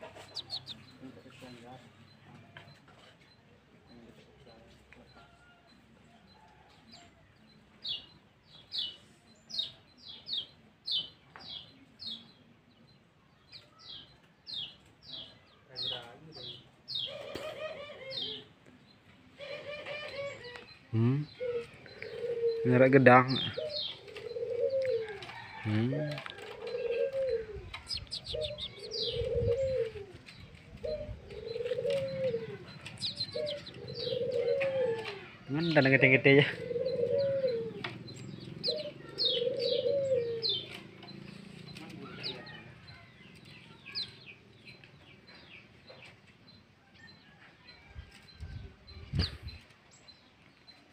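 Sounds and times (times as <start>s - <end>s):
bird chirping: 0.0s - 50.9s
dove cooing: 16.9s - 18.6s, 19.3s - 42.9s.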